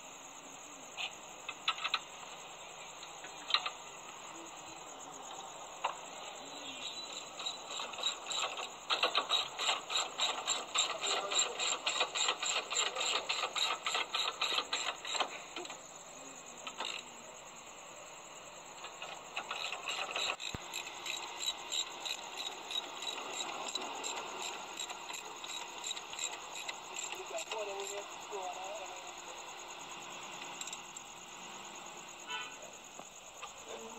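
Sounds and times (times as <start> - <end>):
steady high-pitched hiss: 0.0 - 33.9
rapid even clicking: 1.0 - 2.4, 3.2 - 3.9, 7.1 - 15.8, 16.6 - 17.1, 18.7 - 29.4.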